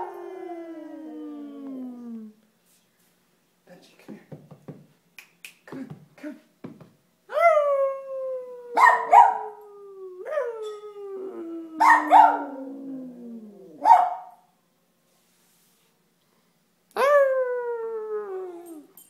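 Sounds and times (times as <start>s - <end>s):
man howling like a wolf: 0.0s - 2.4s, 7.3s - 13.9s, 17.0s - 18.9s
small dog howling: 0.0s - 2.4s, 7.3s - 14.3s, 17.0s - 18.9s.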